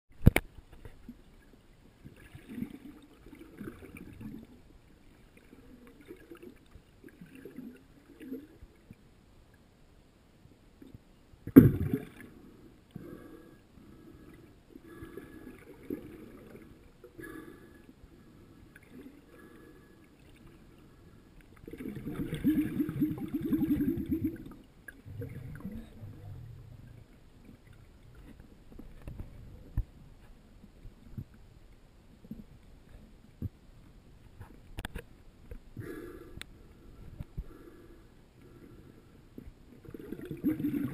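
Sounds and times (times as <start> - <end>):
underwater rumbling: 21.6 - 31.5, 39.8 - 40.9.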